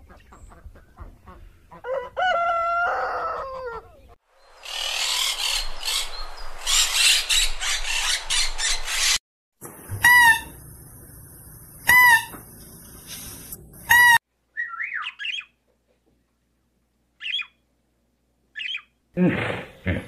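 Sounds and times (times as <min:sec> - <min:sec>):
steady hiss: 0:12.4 - 0:13.9
parrot chirping and whistling: 0:13.8 - 0:15.5.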